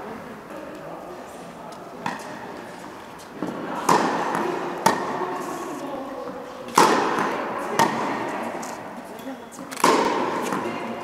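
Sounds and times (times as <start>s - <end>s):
tennis ball hit and bouncing: 2.0s - 2.4s, 3.4s - 5.4s, 6.7s - 8.7s, 9.8s - 11.0s.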